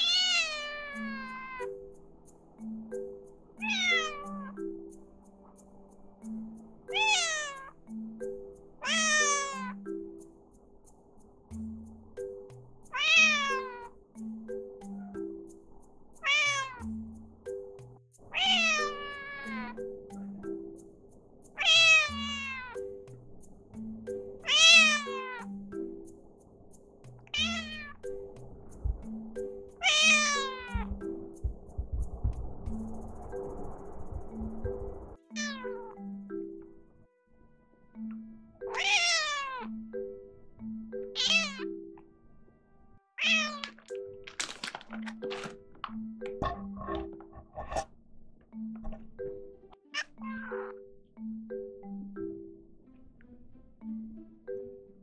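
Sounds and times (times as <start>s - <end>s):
cat meowing: 0.0s - 1.8s, 3.6s - 4.6s, 6.9s - 7.7s, 8.8s - 9.8s, 12.9s - 14.0s, 16.2s - 16.9s, 18.3s - 19.8s, 21.6s - 22.8s, 24.4s - 25.5s, 27.3s - 28.0s, 29.8s - 31.0s, 35.3s - 36.0s, 38.7s - 39.8s, 41.2s - 41.7s, 43.2s - 43.8s, 49.9s - 50.8s
soft background music: 0.0s - 55.0s.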